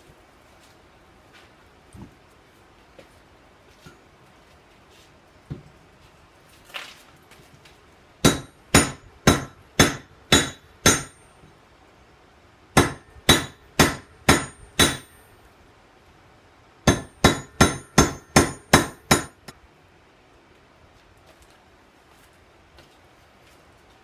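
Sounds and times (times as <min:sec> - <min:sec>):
hammer striking metal on anvil: 0:08.2 - 0:11.2, 0:12.8 - 0:15.2, 0:16.9 - 0:19.6.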